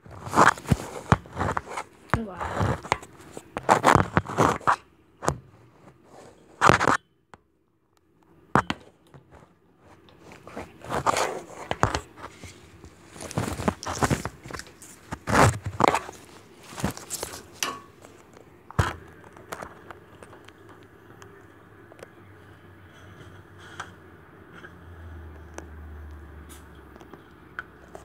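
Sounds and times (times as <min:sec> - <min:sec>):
fingers handling phone microphone: 0:09.2 - 0:22.1.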